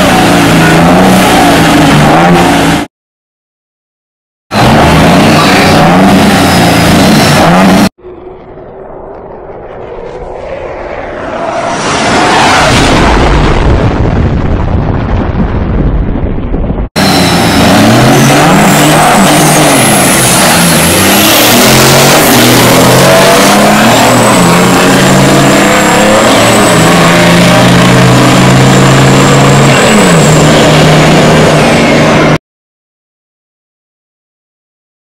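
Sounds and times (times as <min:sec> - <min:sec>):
diesel trucks accelerating: 0:00.0 - 0:02.9, 0:04.5 - 0:13.8, 0:17.0 - 0:32.4.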